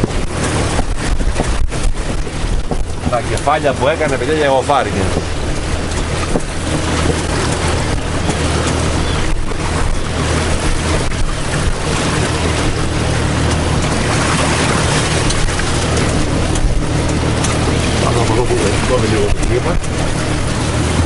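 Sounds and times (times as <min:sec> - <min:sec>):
wind rushing: 0:00.0 - 0:03.8
choppy water: 0:00.0 - 0:21.0
outboard engine humming: 0:00.0 - 0:21.0.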